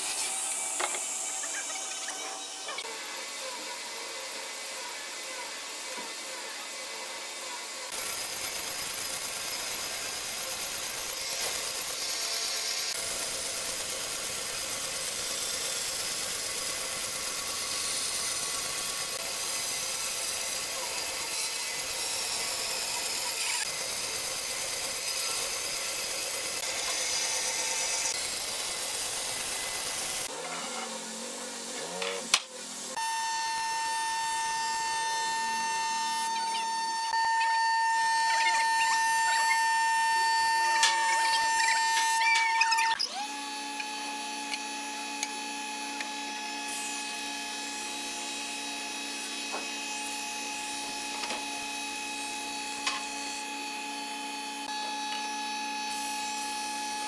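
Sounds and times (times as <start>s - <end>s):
woodworking machinery running: 0.0s - 30.4s, 31.2s - 57.0s.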